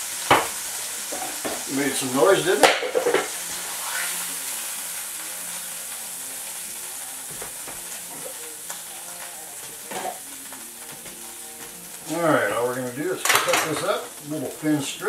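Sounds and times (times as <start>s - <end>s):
oil sizzling in a frying pan: 0.0s - 15.0s
utensils knocking: 2.6s - 3.3s, 13.2s - 14.0s.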